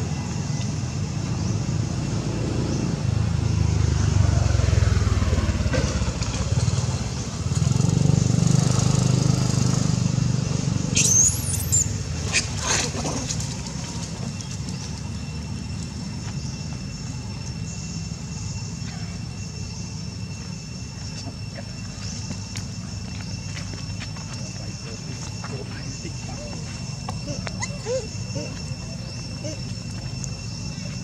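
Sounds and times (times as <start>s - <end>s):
passing motor vehicle rumble: 0.0s - 31.0s
baby monkey squealing: 10.9s - 12.9s, 27.2s - 29.7s.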